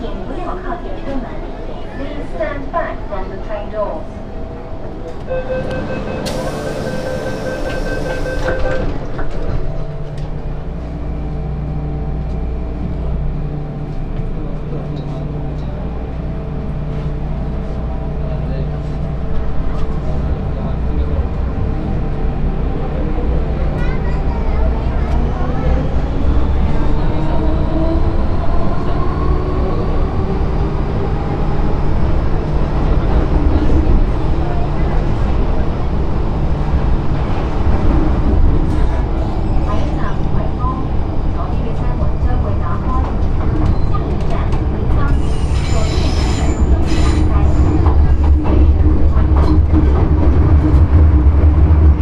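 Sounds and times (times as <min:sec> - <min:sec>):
train wheels rumbling: 0:00.0 - 0:52.0
train doors sliding shut: 0:05.2 - 0:10.4.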